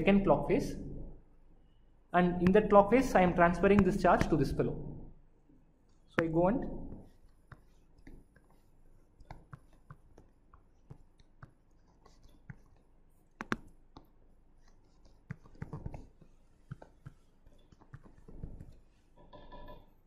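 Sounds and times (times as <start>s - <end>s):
stylus tapping on tablet screen: 6.2s - 19.9s.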